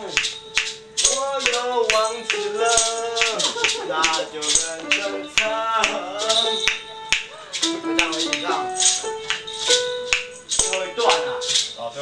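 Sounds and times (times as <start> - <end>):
tambourine shaken in steady beat: 0.0 - 11.8
maracas shaking: 0.0 - 12.0
man singing wordless sliding notes: 1.0 - 6.9.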